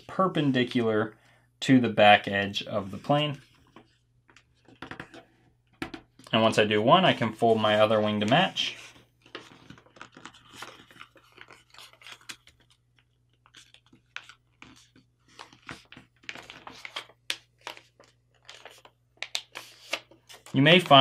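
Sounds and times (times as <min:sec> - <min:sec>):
paper folding and crinkling: 0:07.4 - 0:21.0.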